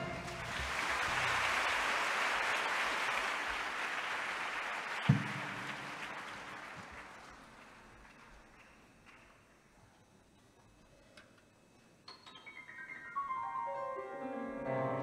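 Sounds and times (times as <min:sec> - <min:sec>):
audience applauding: 0:00.0 - 0:09.5
thump: 0:05.1 - 0:05.4.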